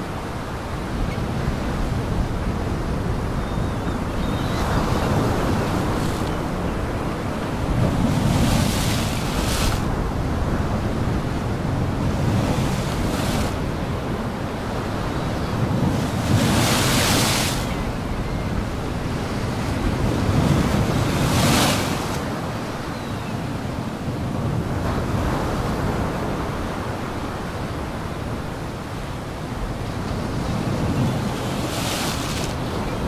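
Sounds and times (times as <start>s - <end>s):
wind: 0.0s - 33.0s
waves breaking: 4.6s - 22.8s, 29.6s - 33.0s.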